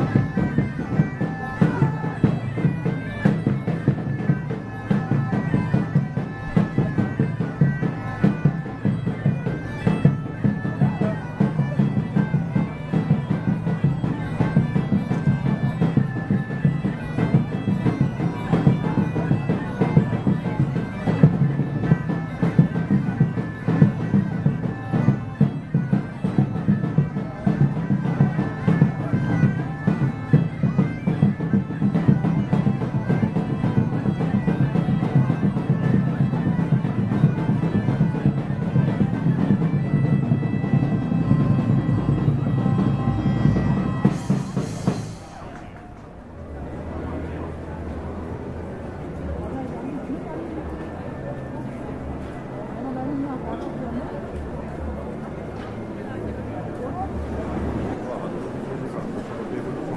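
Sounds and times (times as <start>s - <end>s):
bagpipe music: 0.0s - 59.9s.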